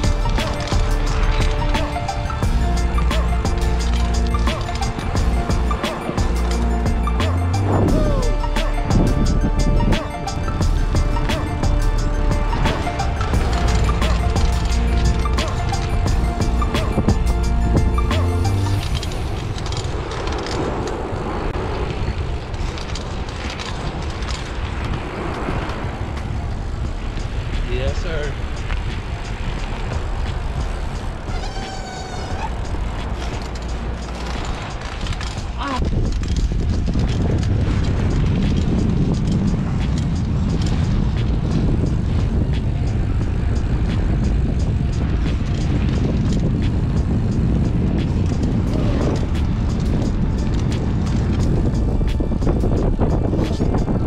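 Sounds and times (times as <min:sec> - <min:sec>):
scattered clicks: 0:00.0 - 0:07.4
bicycle tyres rolling on asphalt: 0:00.0 - 0:54.0
wind on microphone: 0:00.0 - 0:54.0.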